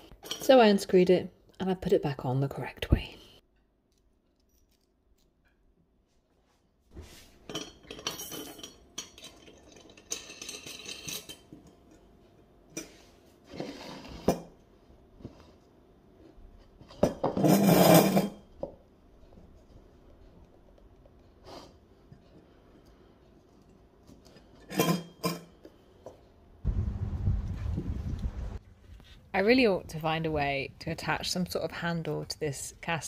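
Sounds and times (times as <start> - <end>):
metal clinking and rattling: 7.5 - 11.6.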